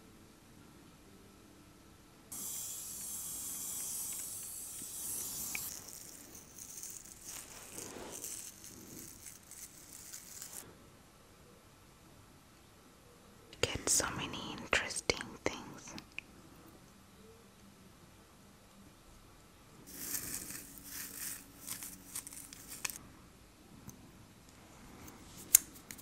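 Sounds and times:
nails scratching through beard: 2.3s - 10.6s, 19.9s - 23.0s.

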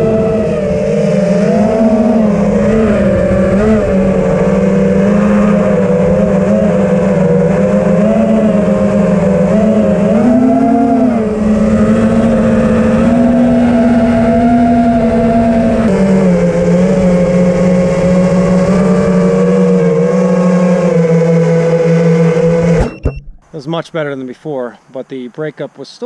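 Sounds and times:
drone motors humming: 0.0s - 25.0s.

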